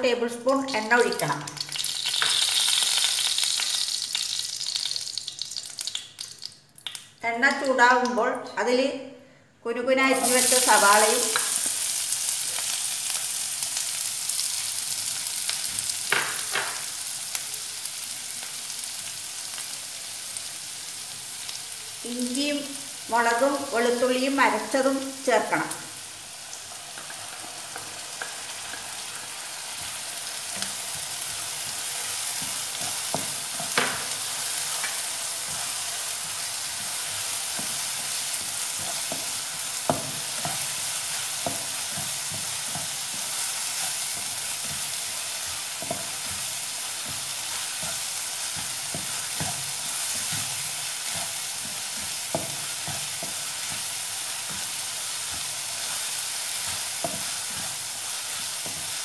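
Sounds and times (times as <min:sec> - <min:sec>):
onion sizzling in hot oil: 0:00.4 - 0:07.2, 0:10.1 - 0:59.0.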